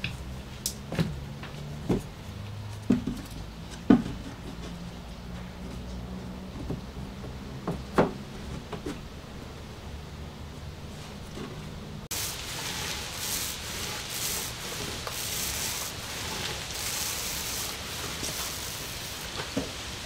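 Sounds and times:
sanding block rasping on plywood: 0:12.1 - 0:20.0.

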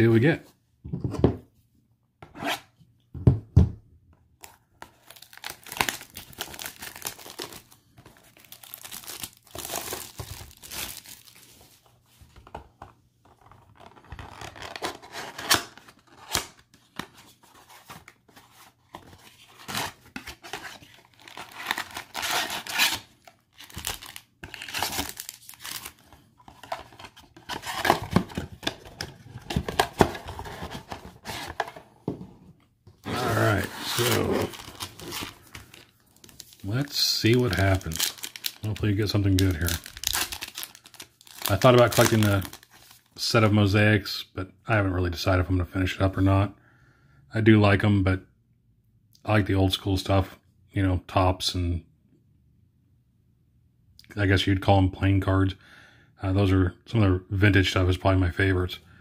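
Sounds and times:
shrink wrap tearing and crinkling: 0:04.9 - 0:11.6, 0:19.3 - 0:28.2, 0:33.1 - 0:43.1.

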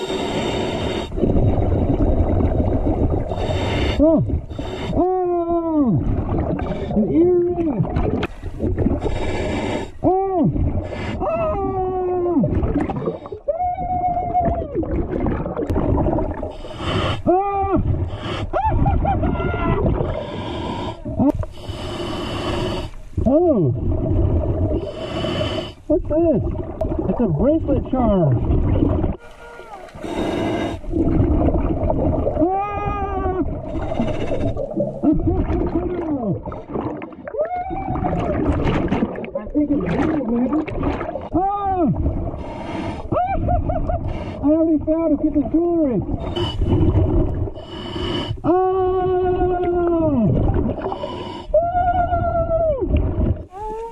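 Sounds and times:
regulator inhale hiss: 0:00.0 - 0:01.2, 0:03.3 - 0:05.0, 0:08.3 - 0:10.0, 0:16.5 - 0:17.3, 0:18.1 - 0:18.5, 0:20.1 - 0:23.1, 0:24.8 - 0:25.9, 0:29.9 - 0:30.9, 0:33.6 - 0:34.8, 0:42.4 - 0:43.1, 0:44.0 - 0:44.4, 0:47.6 - 0:48.4, 0:50.8 - 0:51.5
scuba bubbles rushing: 0:01.1 - 0:04.6, 0:05.9 - 0:09.3, 0:12.4 - 0:13.4, 0:14.3 - 0:17.2, 0:18.7 - 0:20.3, 0:23.7 - 0:24.9, 0:26.3 - 0:29.3, 0:29.9 - 0:42.6, 0:43.4 - 0:47.6, 0:50.2 - 0:51.1, 0:52.8 - 0:53.5.

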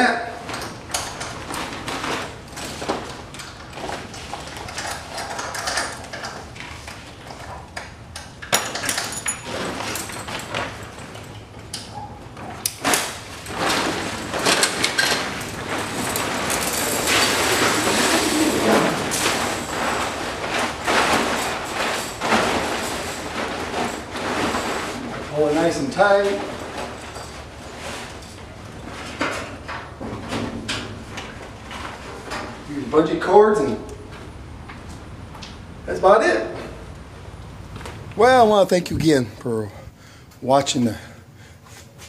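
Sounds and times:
tarp crinkling and rustling: 0:12.8 - 0:29.6.

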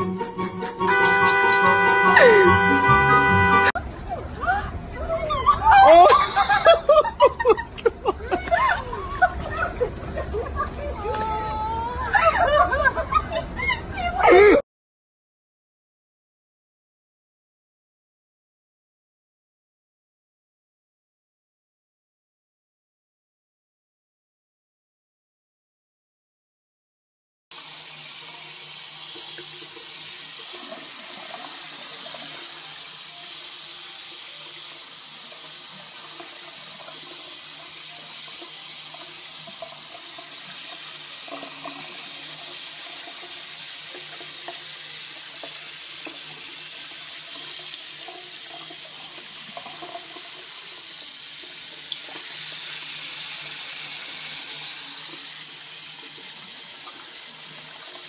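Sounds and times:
tap water pouring onto fur: 0:07.1 - 0:11.9, 0:28.2 - 0:58.0.

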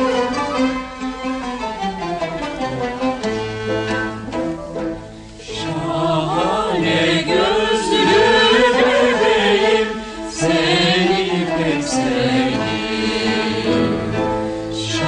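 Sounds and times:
instrumental accompaniment: 0:00.0 - 0:15.0
choir singing: 0:05.4 - 0:14.2, 0:14.8 - 0:15.0.

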